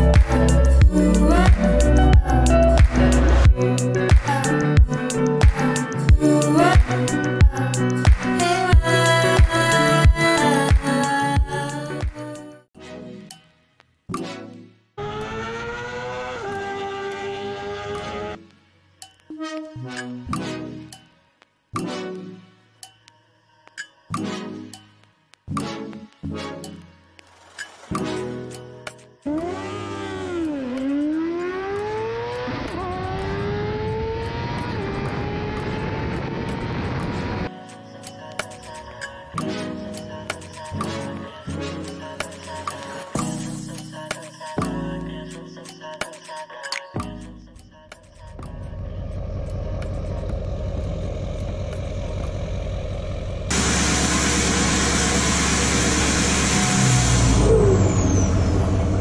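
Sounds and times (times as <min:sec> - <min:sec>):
motorcycle engine revving through gears: 0:15.0 - 0:18.4, 0:29.2 - 0:37.5, 0:48.3 - 0:59.0
pickup engine rumbling: 0:48.4 - 0:59.0.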